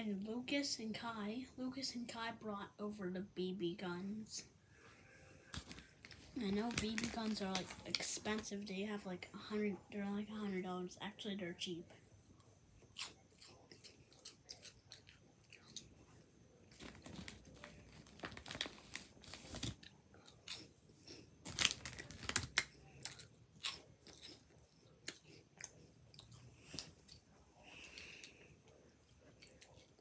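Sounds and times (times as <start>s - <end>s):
person chewing crunchy food: 12.8s - 16.0s, 16.7s - 30.0s.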